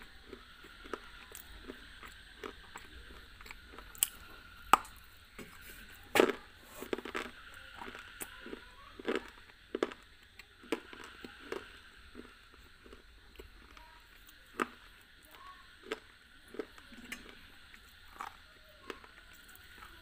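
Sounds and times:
crunchy chewing: 0.0 - 20.0
bite snapping brittle food: 3.4 - 5.0.

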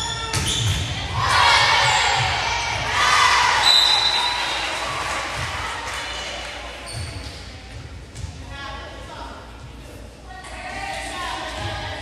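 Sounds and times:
spectators cheering and shouting: 1.0 - 5.9.

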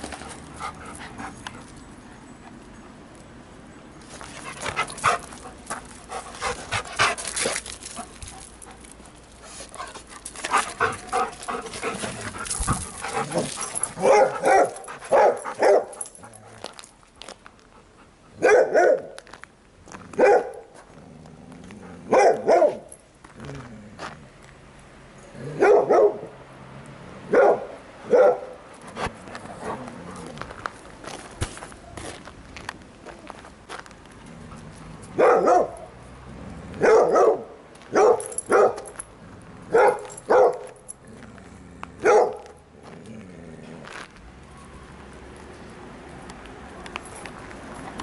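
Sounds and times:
dog barking: 14.0 - 16.0, 18.4 - 19.1, 20.2 - 20.6, 22.1 - 22.9, 25.6 - 26.3, 27.3 - 28.6, 35.2 - 35.9, 36.8 - 38.9, 39.7 - 40.7, 42.0 - 42.5.

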